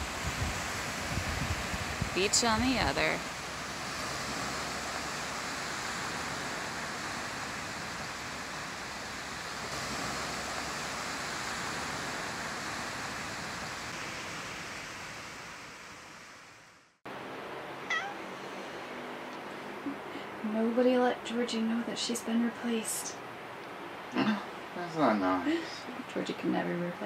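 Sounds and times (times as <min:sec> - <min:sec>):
waves washing onto stony beach: 0:00.0 - 0:15.9.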